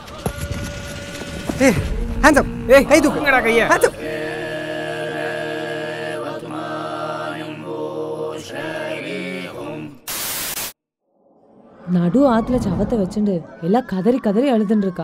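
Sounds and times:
droning soundtrack chords: 0:00.0 - 0:07.7
burst of white noise: 0:10.1 - 0:10.8.

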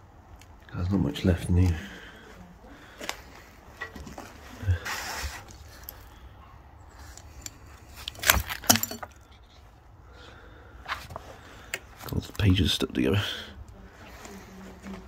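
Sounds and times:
rustling scrape: 0:03.9 - 0:06.0
objects knocking and clattering: 0:07.3 - 0:09.6.

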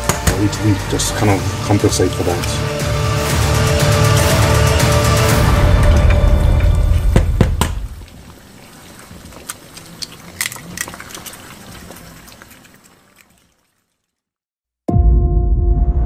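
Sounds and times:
eggs sizzling in frying pan: 0:02.6 - 0:14.3
eggshell tapping on pan: 0:07.1 - 0:07.9.

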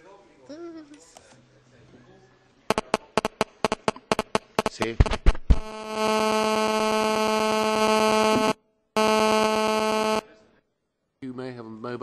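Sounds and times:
mobile phone interference buzz: 0:02.7 - 0:10.3.

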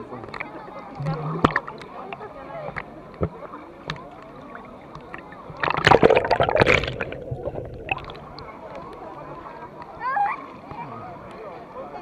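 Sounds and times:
river water splashing: 0:02.8 - 0:08.8.

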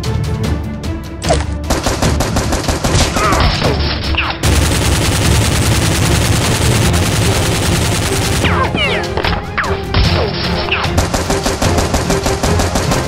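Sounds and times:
rapid automatic gunfire: 0:01.7 - 0:08.7, 0:10.8 - 0:13.0.

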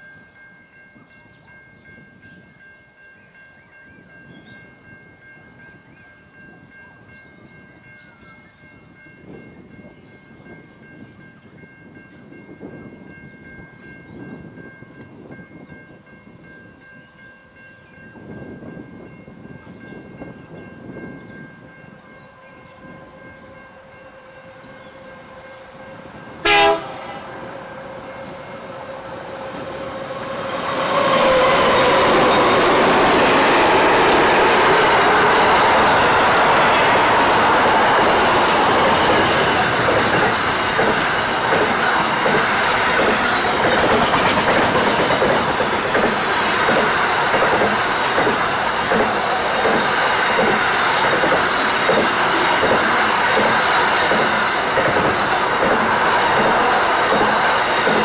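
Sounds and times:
freight train rumble: 0:00.0 - 0:58.0
train horn blast: 0:22.3 - 0:39.9.

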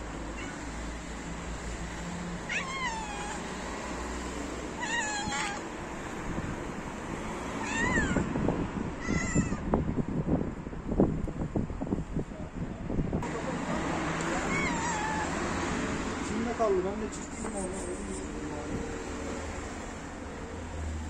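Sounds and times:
cat meowing: 0:00.1 - 0:01.0, 0:02.4 - 0:03.6, 0:04.8 - 0:05.7, 0:07.6 - 0:08.3, 0:09.0 - 0:09.7, 0:14.3 - 0:15.4.

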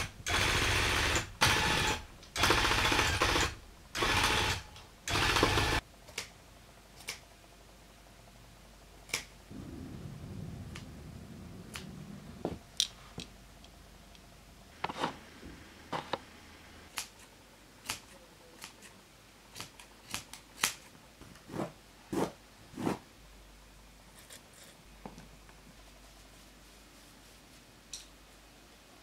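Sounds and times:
scissors snipping yarn: 0:16.9 - 0:20.9.

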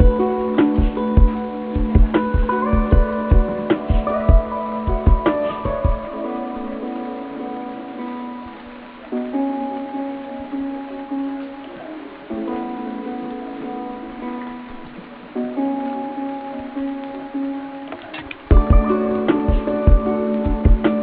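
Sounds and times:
instrumental background music: 0:00.0 - 0:21.0.

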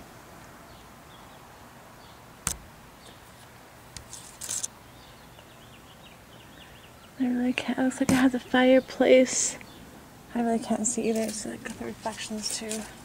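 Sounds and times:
sharp click: 0:02.4 - 0:02.7.

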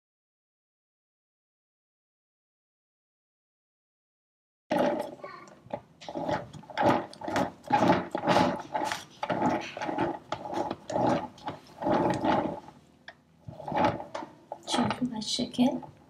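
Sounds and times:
cake turntable turning: 0:04.7 - 0:12.8, 0:13.4 - 0:16.0
icing spatula scraping buttercream: 0:04.7 - 0:12.8, 0:13.5 - 0:15.0.

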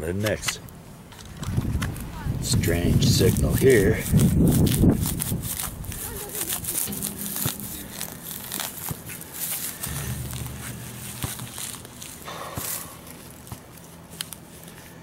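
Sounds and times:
soil crackling: 0:01.3 - 0:15.0
hands raking loose dirt: 0:02.6 - 0:15.0
roots tearing: 0:03.0 - 0:15.0
knife cutting turf: 0:03.2 - 0:15.0.

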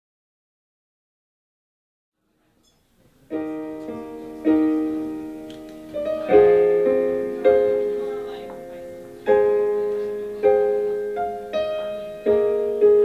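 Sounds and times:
piano chords ringing: 0:03.2 - 0:13.0.

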